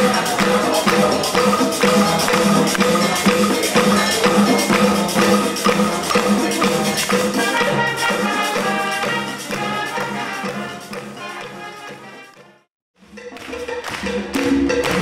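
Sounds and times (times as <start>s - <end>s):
hand percussion: 0.0s - 15.0s
wind orchestra playing latin music: 0.0s - 15.0s.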